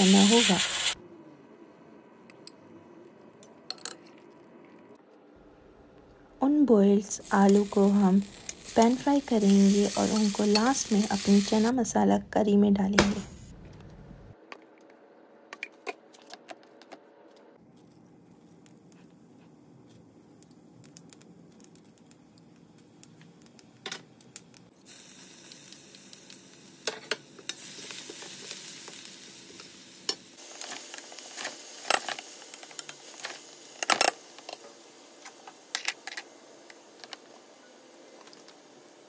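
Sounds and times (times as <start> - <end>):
garlic and onion sizzling in a pan: 0.0 - 1.0, 7.1 - 11.7, 20.2 - 39.0.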